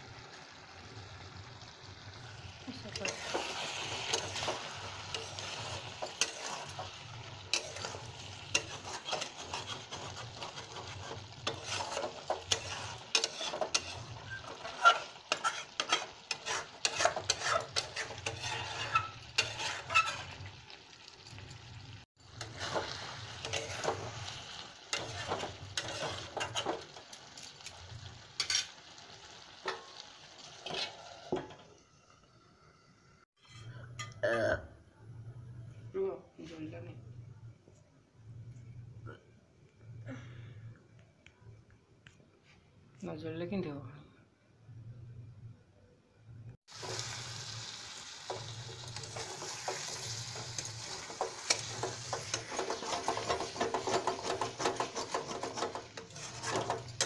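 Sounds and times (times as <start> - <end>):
curry sizzling and popping: 0.0 - 34.2, 46.6 - 57.0.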